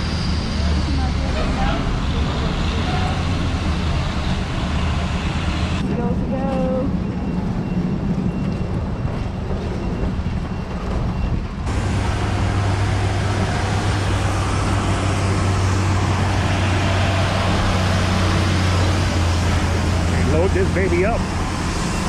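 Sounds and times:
heavy truck engines running: 0:00.0 - 0:22.0
yard tractor engine hum: 0:11.6 - 0:22.0.

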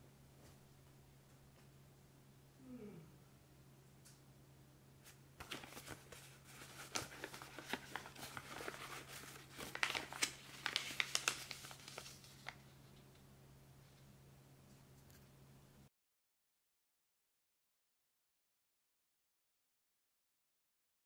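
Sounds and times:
paper crinkling as folded: 0:05.4 - 0:13.2.

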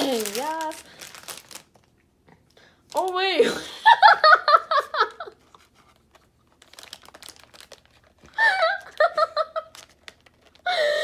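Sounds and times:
plastic packaging crinkling: 0:00.0 - 0:02.1, 0:02.8 - 0:03.4, 0:05.3 - 0:11.0
girl laughing: 0:03.4 - 0:05.4, 0:08.4 - 0:09.8.

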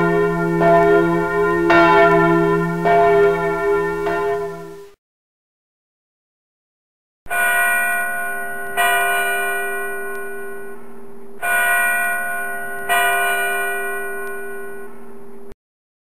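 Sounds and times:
church bell tolling: 0:00.0 - 0:05.0, 0:07.3 - 0:10.8, 0:11.4 - 0:15.0.

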